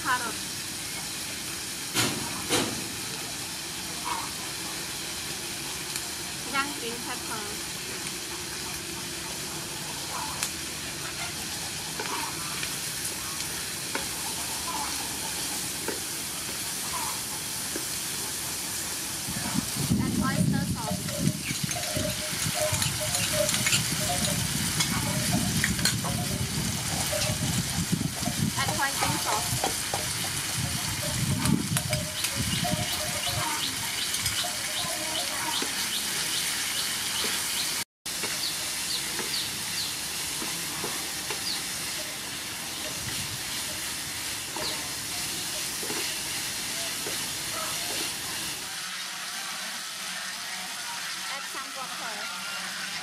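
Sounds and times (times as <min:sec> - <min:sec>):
food sizzling in a frying pan: 0:00.0 - 0:53.0
spatula scraping a pan: 0:20.9 - 0:35.3, 0:40.3 - 0:53.0.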